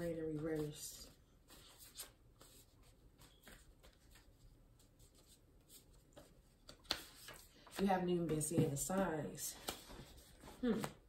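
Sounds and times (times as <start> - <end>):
cards shuffling: 5.1 - 7.9, 8.7 - 11.0.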